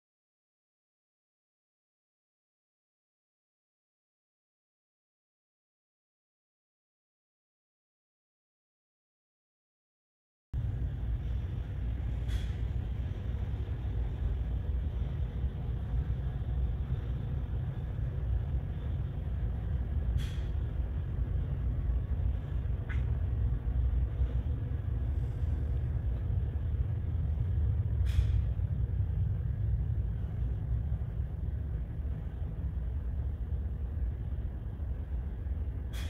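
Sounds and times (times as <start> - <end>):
ferry engine rumble: 10.6 - 36.0.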